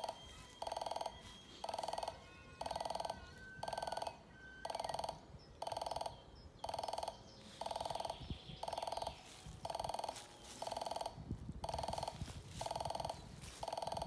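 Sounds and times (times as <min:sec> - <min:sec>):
level crossing bell ringing: 0:00.0 - 0:04.0.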